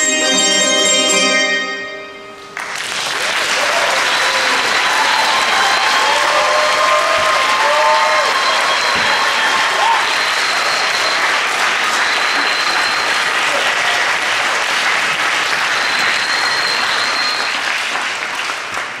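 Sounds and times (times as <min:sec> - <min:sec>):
audience applauding: 0:02.6 - 0:19.0.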